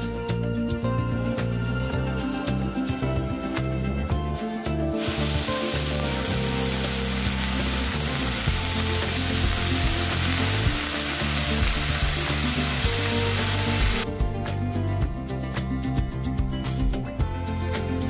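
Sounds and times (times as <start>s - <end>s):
sauce pouring: 5.0s - 14.0s
vegetables sizzling in a pan: 5.0s - 14.0s.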